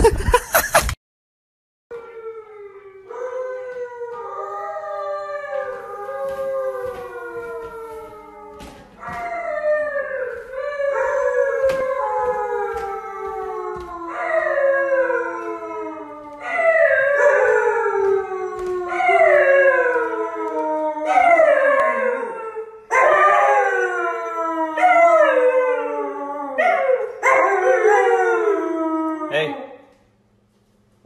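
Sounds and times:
dog howling: 1.9 - 29.8
footsteps on wooden stairs: 5.1 - 21.0.

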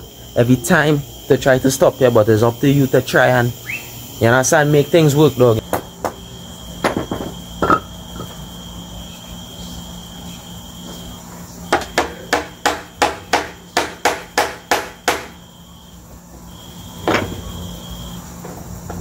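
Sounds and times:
hammer striking nail into wood: 11.7 - 15.3.

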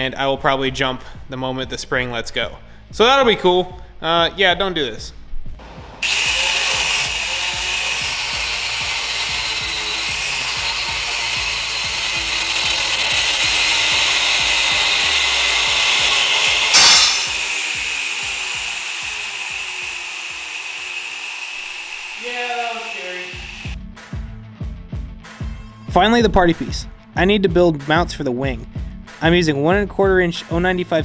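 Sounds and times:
angle grinder cutting steel: 6.0 - 23.8
spring snapping: 16.7 - 17.5.

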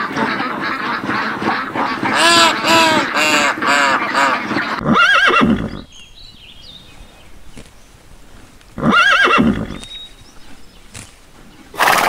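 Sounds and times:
horse whinnying: 4.8 - 5.9, 8.8 - 9.8.

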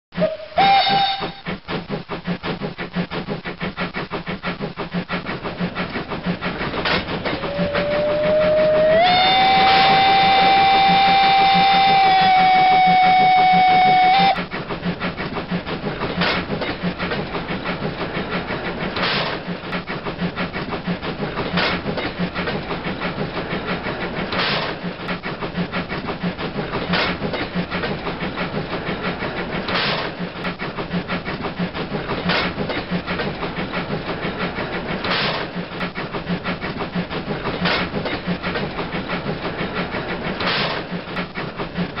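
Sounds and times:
train whistle: 0.2 - 1.5, 7.3 - 14.5
model train running: 0.2 - 42.0.

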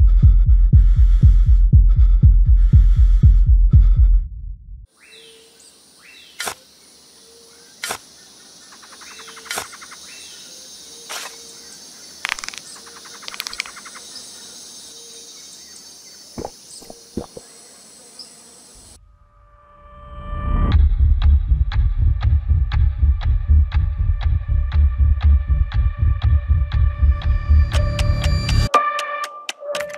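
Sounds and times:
crickets chirping: 4.9 - 19.0.

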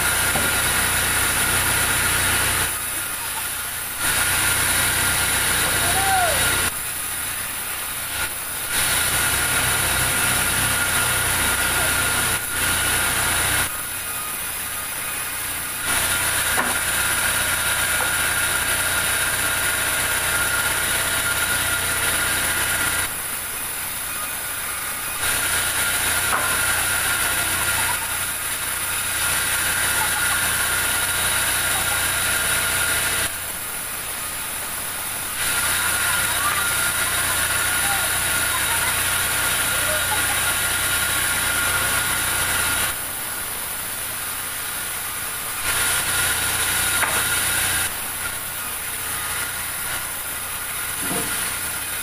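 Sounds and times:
band saw cutting wood: 0.0 - 52.0.

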